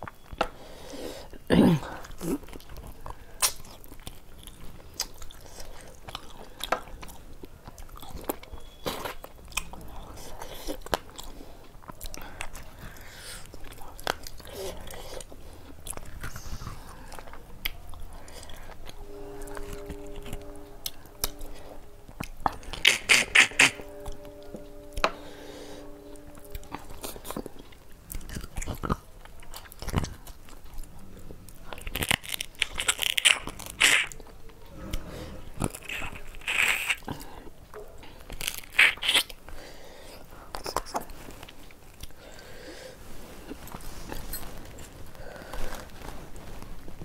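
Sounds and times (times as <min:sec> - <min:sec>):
person chewing and crunching food: 0:00.0 - 0:19.0, 0:27.3 - 0:37.5, 0:38.2 - 0:42.5.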